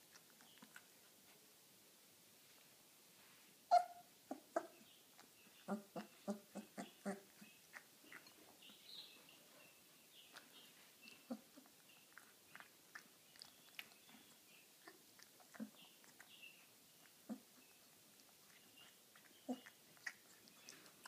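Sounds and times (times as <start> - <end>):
puppy eating smacking sounds: 0.0 - 1.3, 10.2 - 21.0
puppy high squeaks: 3.7 - 4.0.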